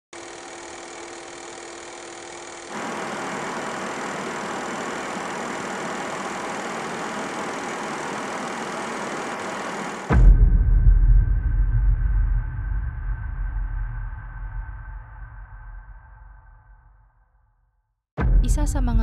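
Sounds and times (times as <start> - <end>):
film projector whirring: 0.1 - 10.1.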